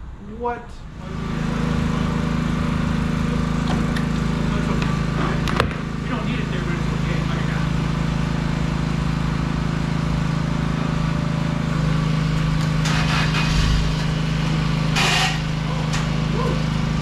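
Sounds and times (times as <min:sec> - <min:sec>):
forklift engine idling: 0:00.8 - 0:17.0.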